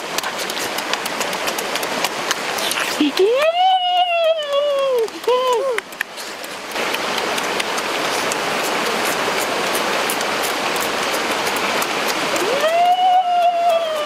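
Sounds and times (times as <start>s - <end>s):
stream rushing: 0.0s - 14.0s
faint clicks: 0.1s - 8.4s.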